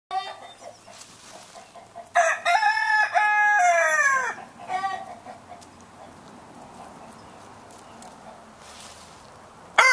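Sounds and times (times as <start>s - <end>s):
chicken clucking: 0.2s - 2.6s, 4.0s - 7.2s
rooster crowing: 2.1s - 4.5s.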